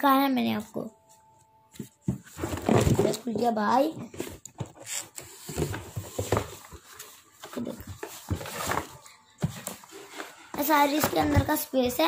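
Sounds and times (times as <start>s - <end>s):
cardboard rustling and scraping: 1.8s - 11.6s.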